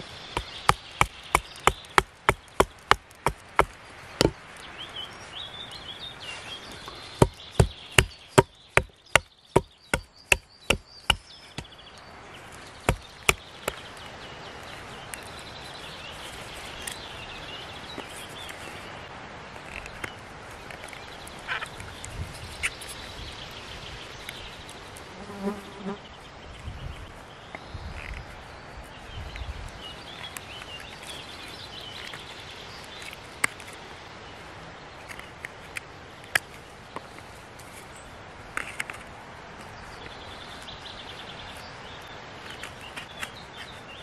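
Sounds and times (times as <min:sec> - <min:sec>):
hatchet chopping wood: 0:00.3 - 0:04.4, 0:07.2 - 0:11.7, 0:12.8 - 0:13.8.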